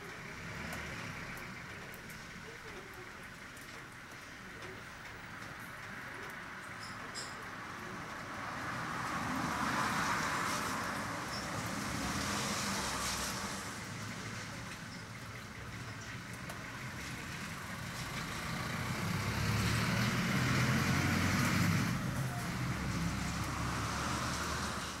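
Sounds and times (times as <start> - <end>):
passing vehicle: 0.0 - 2.6, 7.4 - 25.0
road traffic: 0.0 - 25.0
heavy rain hissing: 8.3 - 15.0, 15.7 - 25.0.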